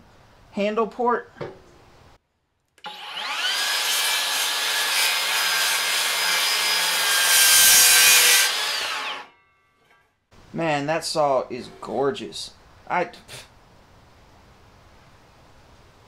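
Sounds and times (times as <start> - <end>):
circular saw cutting wood: 2.8 - 9.4.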